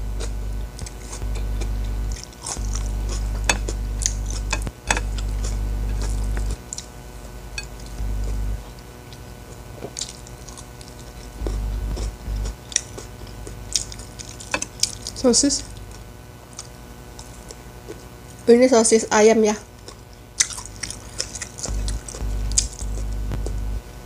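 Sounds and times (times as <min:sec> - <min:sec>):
low hum: 0:00.0 - 0:17.0, 0:20.8 - 0:24.0
chewing clicks: 0:19.8 - 0:23.6.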